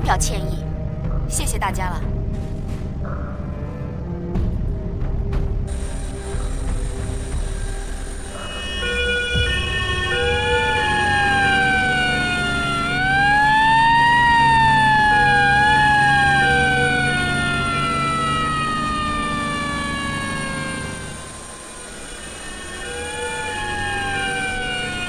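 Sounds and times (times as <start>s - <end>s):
ambulance siren wailing: 5.8s - 25.0s.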